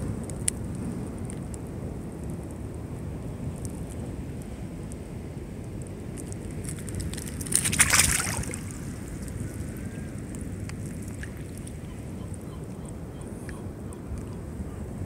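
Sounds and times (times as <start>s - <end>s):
rush of water with crackles: 0.0s - 15.0s
water rumbling: 6.2s - 12.4s.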